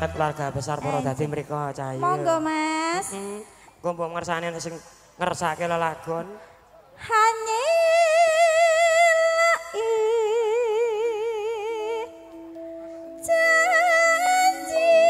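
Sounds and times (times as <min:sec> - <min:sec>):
melody with wavering vibrato: 0:10.1 - 0:15.0.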